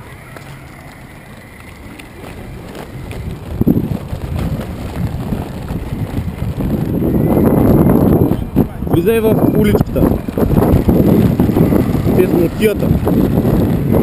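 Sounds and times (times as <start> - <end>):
skateboard wheels on cobblestones: 0.0 - 14.0
wind noise on microphone: 0.0 - 14.0.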